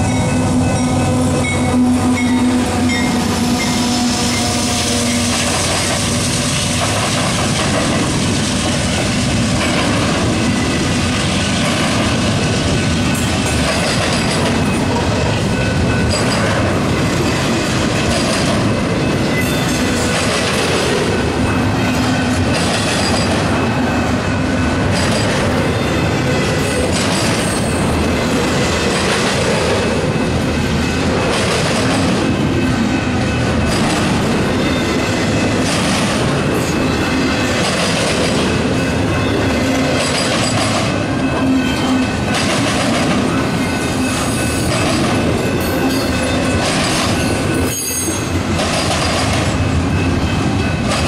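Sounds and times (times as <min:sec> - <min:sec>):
train wheels rumbling on rails: 0:00.0 - 0:51.0
wheels clacking over rail joints: 0:00.0 - 0:51.0
high wheel squealing: 0:45.6 - 0:48.4.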